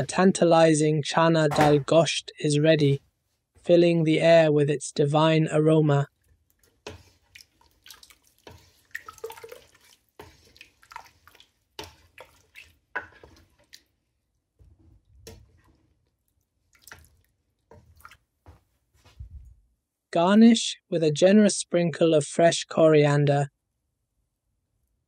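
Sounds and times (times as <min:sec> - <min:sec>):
wet splats from thick curry: 0:06.5 - 0:13.9, 0:16.7 - 0:18.2.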